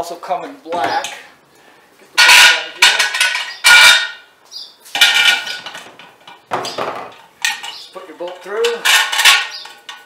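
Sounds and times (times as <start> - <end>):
metal bar clanking on plastic: 5.0 - 10.0.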